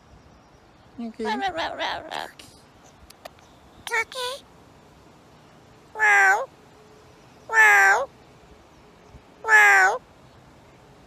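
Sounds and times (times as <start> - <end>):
cat meowing: 6.0 - 6.5, 7.5 - 8.1, 9.4 - 10.0.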